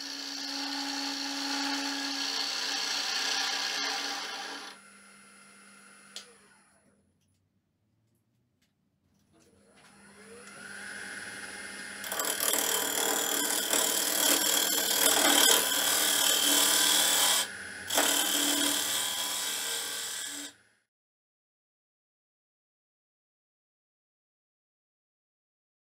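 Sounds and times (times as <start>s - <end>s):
lathe motor humming: 0.0s - 6.8s, 9.9s - 20.5s
tool cutting spinning wood: 0.0s - 6.8s, 9.9s - 20.6s.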